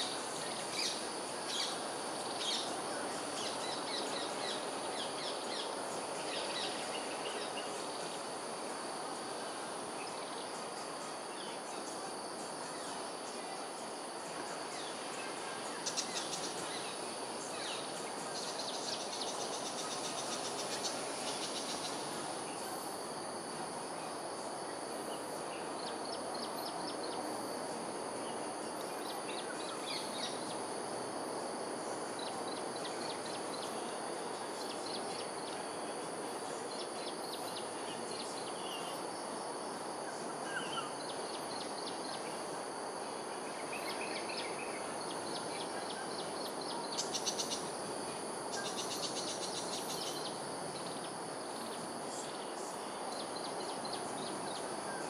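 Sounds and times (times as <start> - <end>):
background hiss: 0.0 - 55.0
high insect drone: 0.0 - 55.0.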